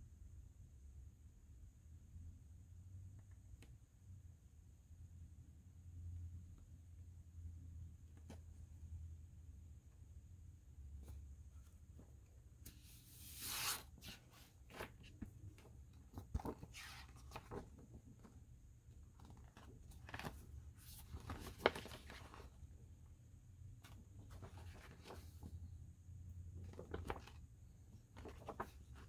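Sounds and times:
paper swish: 0:12.7 - 0:14.9
glossy paper rustling: 0:19.1 - 0:22.6, 0:26.6 - 0:29.0.

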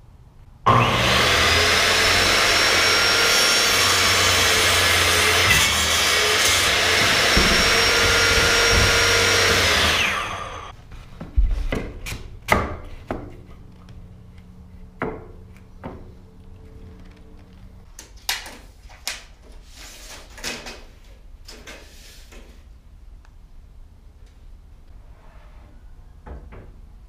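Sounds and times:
electric saw motor whining: 0:00.7 - 0:10.7.

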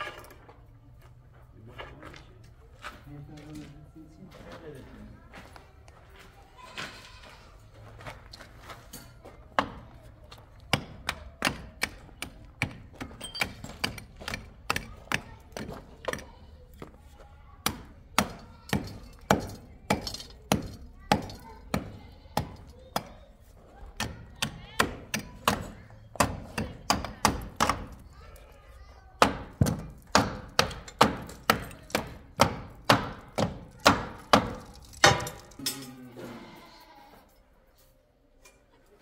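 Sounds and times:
hammer striking brick: 0:29.2 - 0:35.5.

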